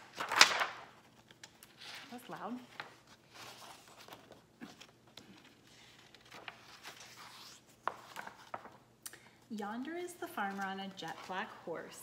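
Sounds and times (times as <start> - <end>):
book pages turning: 0.0 - 8.9.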